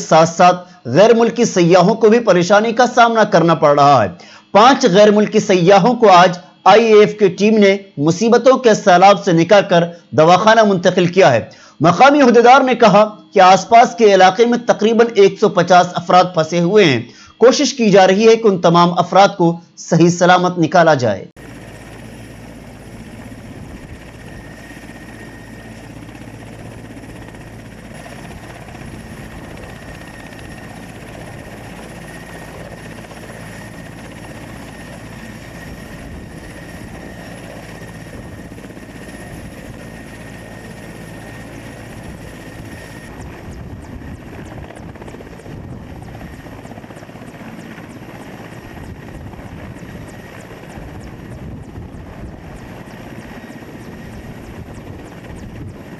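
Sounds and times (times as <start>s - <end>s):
helicopter rotor beat: 0.0s - 55.9s
helicopter turbine whine: 0.0s - 55.9s.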